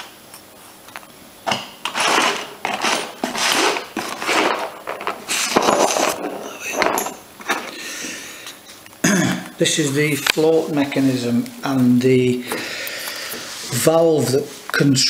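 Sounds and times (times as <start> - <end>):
small metal parts rustling on paper: 1.9 - 7.2.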